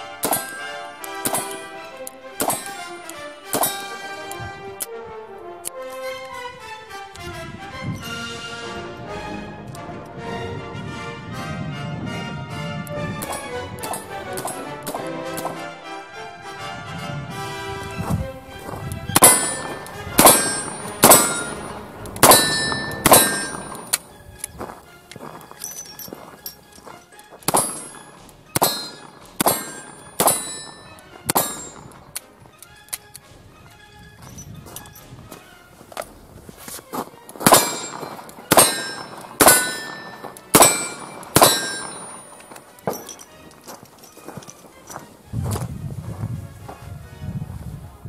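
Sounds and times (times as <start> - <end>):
steel targets ringing: 0.0 - 4.3, 13.2 - 15.6, 18.6 - 24.2, 25.2 - 32.2, 37.4 - 45.0.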